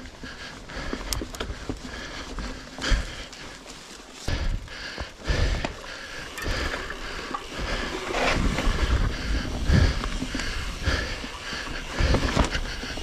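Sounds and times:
bike knocking and rattling: 0.0s - 13.0s
bike tyres rolling on dirt: 0.0s - 13.0s
wind buffeting microphone: 6.4s - 13.0s.

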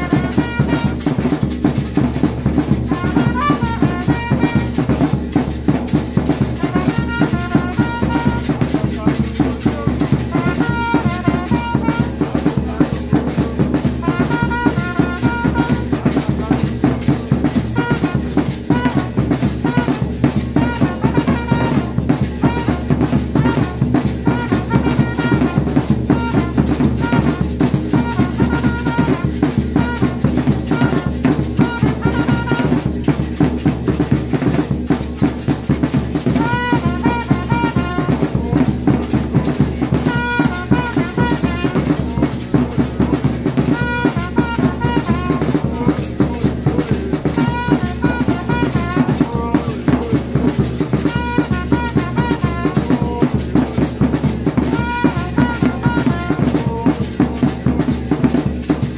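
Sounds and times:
drums playing fast beat: 0.0s - 58.9s.

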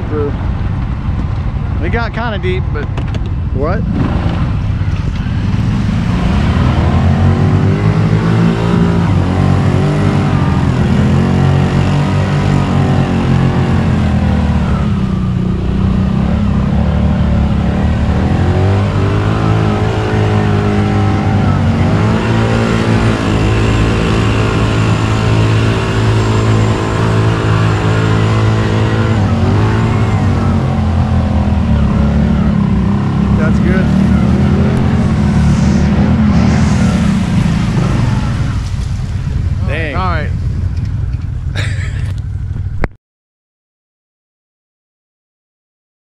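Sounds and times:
atv engine revving: 1.1s - 42.9s
vehicle driving through water: 17.9s - 40.3s.

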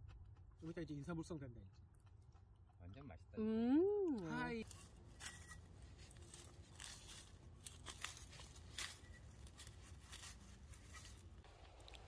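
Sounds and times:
hand tool scraping soil and leaves: 4.6s - 11.5s.

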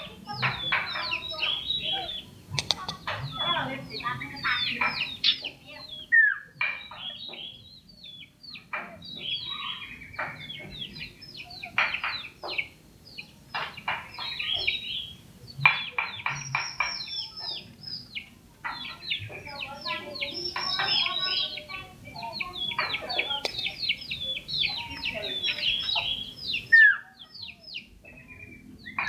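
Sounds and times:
bird singing chattering notes: 0.0s - 29.0s.

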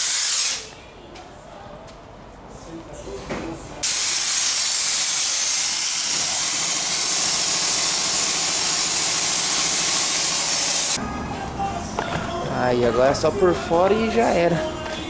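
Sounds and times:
pressure washer spraying: 0.0s - 0.7s, 3.8s - 11.0s.

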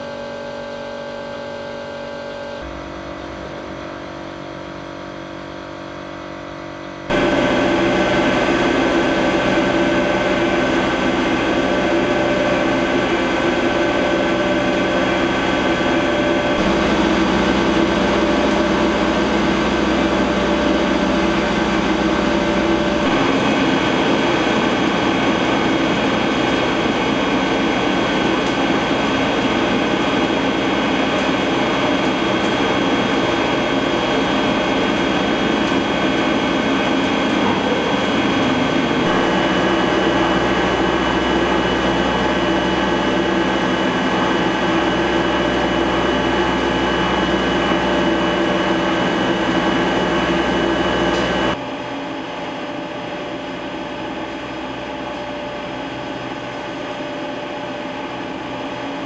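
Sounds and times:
machinery humming with whine: 0.0s - 59.0s.

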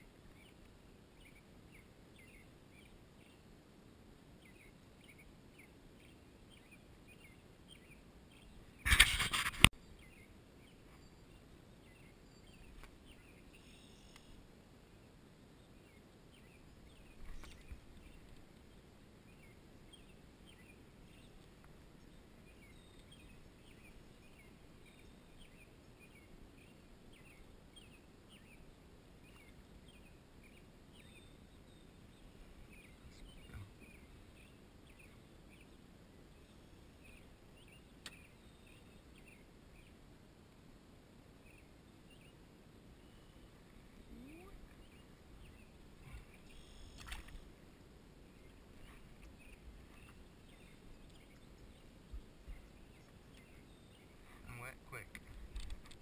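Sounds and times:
faint high chirps: 9.8s - 14.4s, 41.5s - 47.4s.

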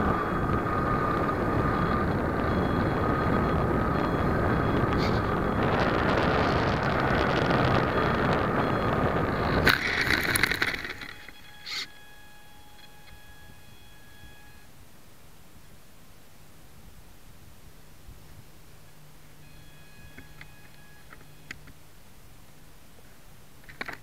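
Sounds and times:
electric model plane motor: 0.0s - 14.7s, 19.2s - 21.8s.

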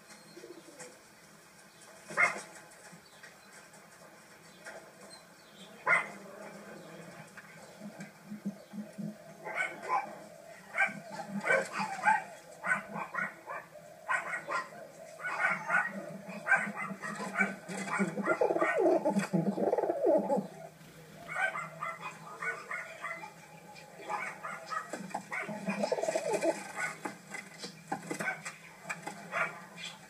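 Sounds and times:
dog yapping: 10.8s - 19.0s, 21.3s - 23.3s.

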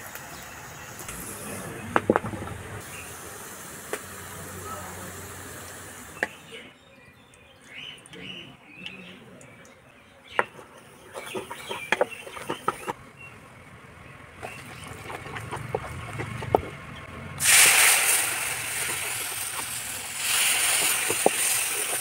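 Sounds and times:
oil sizzling hiss: 0.0s - 6.5s, 17.4s - 22.0s
metal spoon scraping pan: 10.4s - 13.0s.

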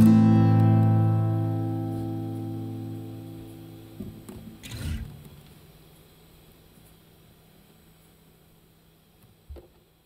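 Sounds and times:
acoustic guitar chord ringing: 0.0s - 5.2s.

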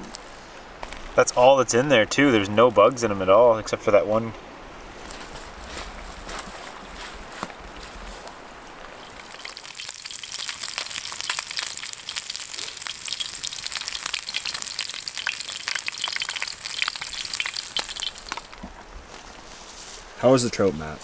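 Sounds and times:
fish sizzling in a pan: 9.0s - 18.6s.

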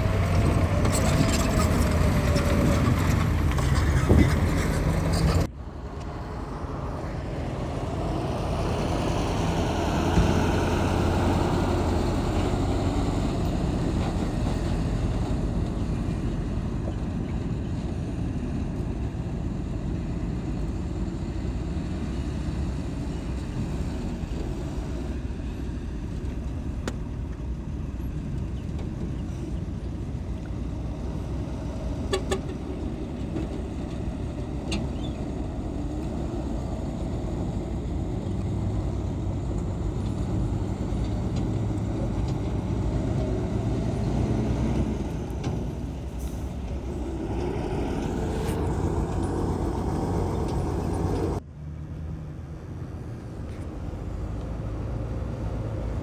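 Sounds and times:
heavy machinery diesel engines: 0.0s - 56.0s.

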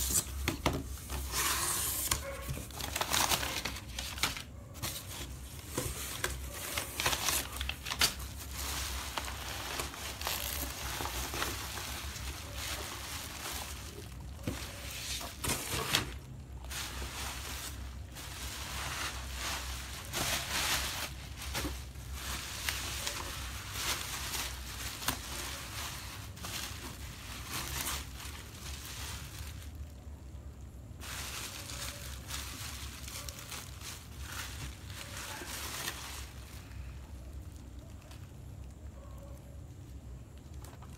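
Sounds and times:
bubble wrap crinkling: 0.0s - 39.0s.

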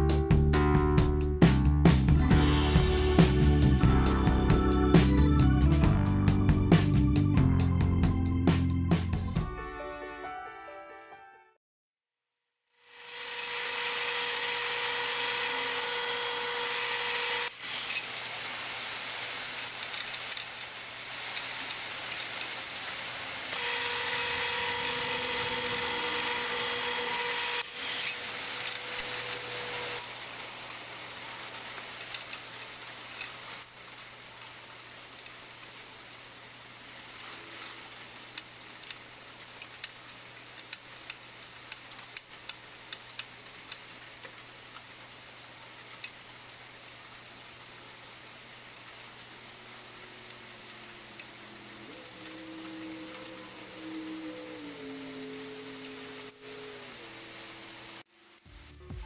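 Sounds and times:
mill spindle whine: 12.8s - 18.0s, 23.5s - 30.2s, 49.6s - 58.0s
metal cutting noise: 12.8s - 18.2s, 23.5s - 30.2s.

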